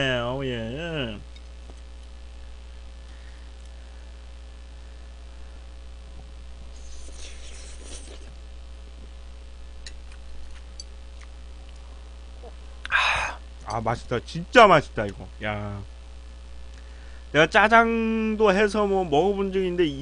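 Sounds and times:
steady low hum: 0.0s - 20.0s
person slurping noodles: 6.7s - 8.3s.

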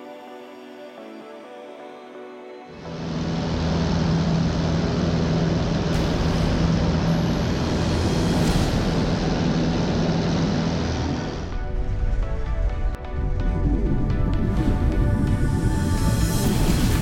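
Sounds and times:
propeller aircraft engine drone: 2.8s - 17.0s.

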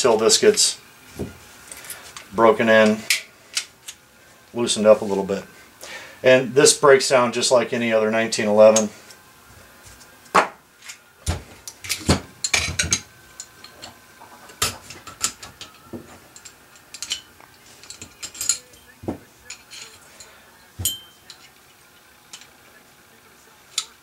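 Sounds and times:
pistol metal parts clicking: 11.7s - 18.8s.

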